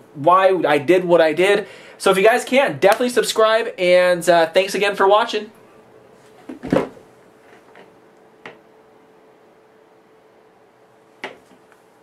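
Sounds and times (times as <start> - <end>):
faint steady hum: 0.0 - 12.0
handling knock and rustle: 6.2 - 8.6.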